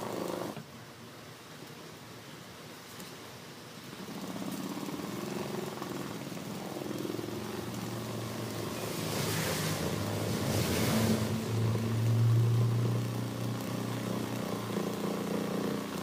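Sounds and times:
sewing machine running: 0.0s - 0.6s, 12.6s - 16.0s.

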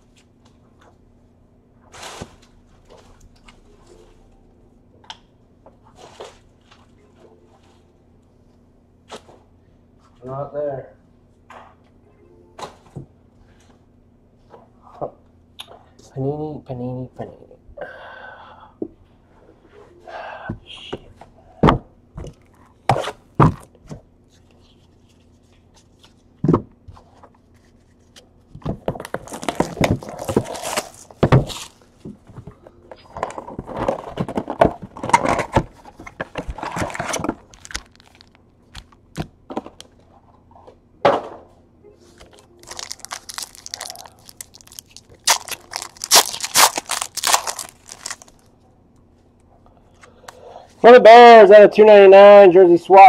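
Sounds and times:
foil packs crinkling and tearing: 29.0s - 31.8s, 36.5s - 39.0s, 42.6s - 48.5s.

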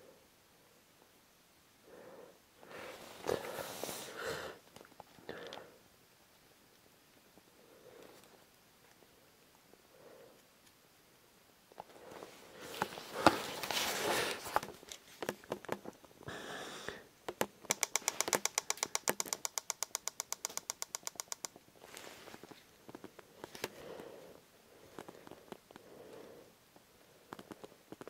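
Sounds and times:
rapid sharp clicks: 17.3s - 21.6s.

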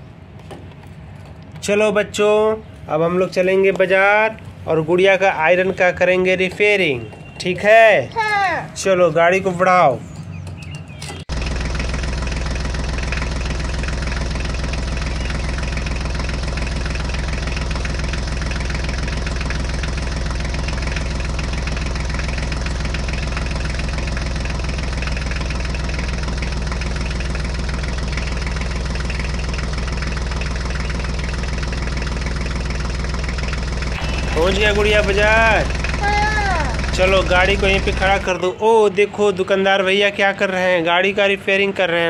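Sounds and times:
tractor engine chugging: 10.0s - 38.5s.

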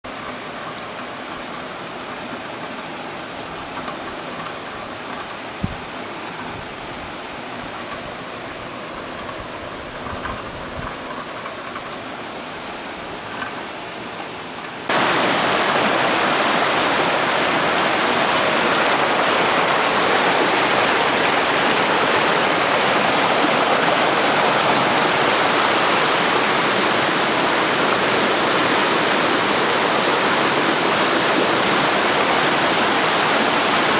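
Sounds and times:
floodwater rushing: 0.1s - 33.9s.

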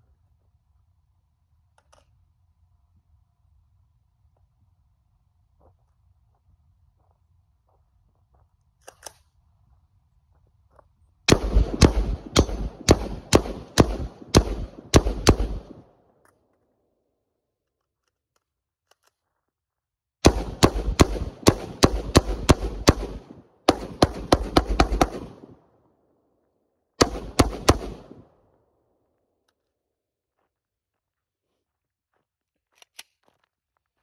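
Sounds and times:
rifle shots: 11.3s - 15.9s, 20.2s - 25.6s, 27.0s - 28.3s.

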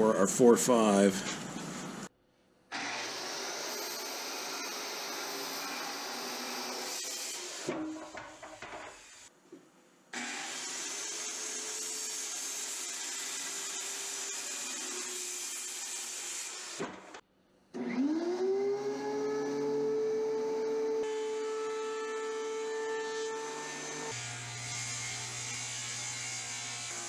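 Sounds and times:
circular saw cutting wood: 2.7s - 9.3s, 10.1s - 17.2s, 17.8s - 27.0s
planer motor whine: 17.8s - 21.7s.

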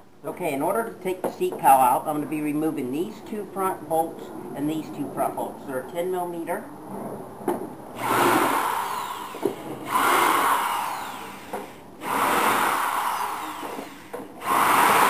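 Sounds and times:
cordless drill spinning out bolts: 8.0s - 15.0s
drill clicks: 8.0s - 15.0s.

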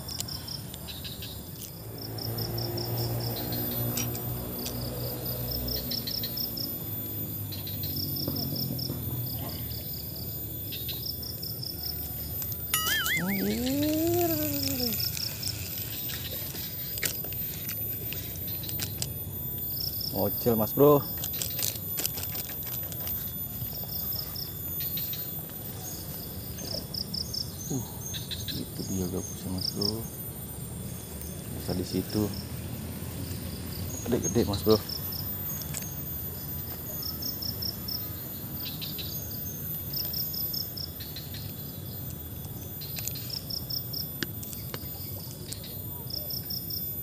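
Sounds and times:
insects chirping: 0.0s - 47.0s
camera carried through grass: 12.0s - 19.8s, 20.9s - 26.8s
warbling call: 12.8s - 15.1s.

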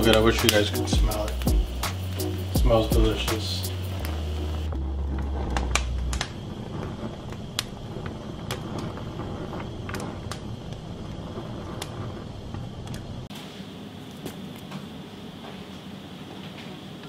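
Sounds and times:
pepper skins popping and crackling: 0.0s - 13.3s
gas burner flame hissing: 0.0s - 17.0s.

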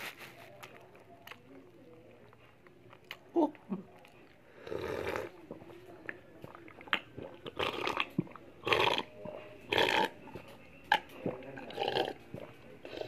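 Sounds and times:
person slurping a drink: 4.6s - 5.4s, 7.5s - 9.1s, 9.7s - 10.1s, 11.6s - 12.2s.

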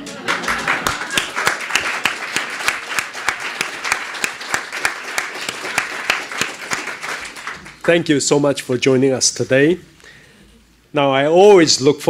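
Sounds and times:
sharp individual claps: 0.0s - 7.9s
audience applauding: 0.0s - 8.1s.

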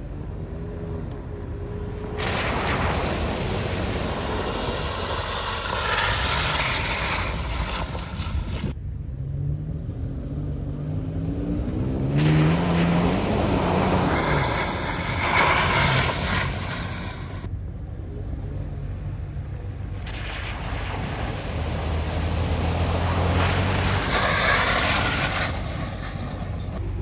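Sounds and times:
off-road vehicle engines revving: 0.0s - 27.0s
tyres throwing mud and water: 2.1s - 8.8s, 11.8s - 17.5s, 19.8s - 26.9s.

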